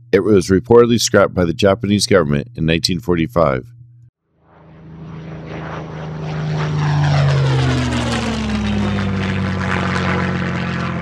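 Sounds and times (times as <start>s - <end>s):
propeller airplane flying past: 3.7s - 11.0s.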